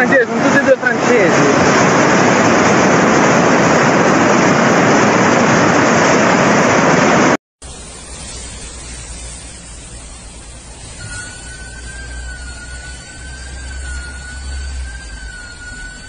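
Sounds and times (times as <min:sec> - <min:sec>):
floodwater torrent rushing: 0:00.0 - 0:07.4
low rumble: 0:08.6 - 0:16.0.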